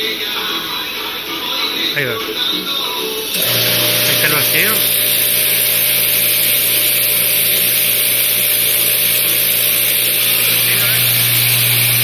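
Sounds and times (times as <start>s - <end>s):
vacuum pump humming and hissing: 3.0s - 12.0s.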